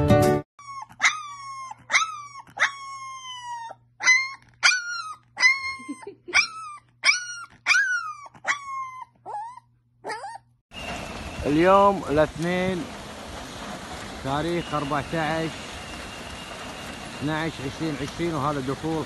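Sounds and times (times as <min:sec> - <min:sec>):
puppy howling: 0:00.6 - 0:10.5.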